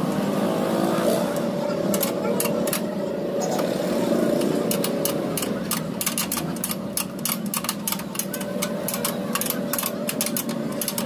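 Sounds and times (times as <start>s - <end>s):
steady mechanical hum: 0.0s - 11.0s
wrench clicking: 1.9s - 2.9s, 4.4s - 11.0s.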